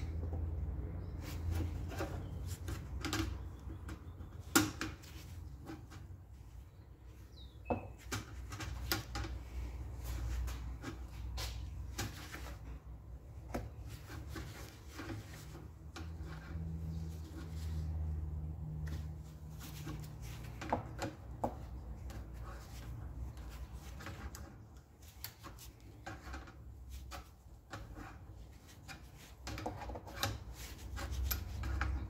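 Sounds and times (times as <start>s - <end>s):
hand tools clicking and knocking: 1.4s - 6.3s, 19.6s - 32.0s.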